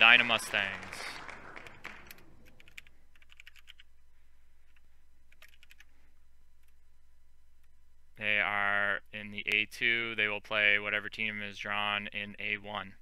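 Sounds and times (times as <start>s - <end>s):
keyboard typing: 1.6s - 3.9s, 4.7s - 5.9s.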